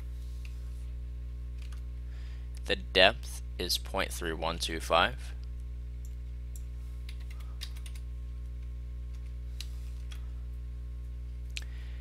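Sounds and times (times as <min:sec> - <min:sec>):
low electrical hum: 0:00.0 - 0:12.0
keyboard clicks: 0:06.0 - 0:08.0.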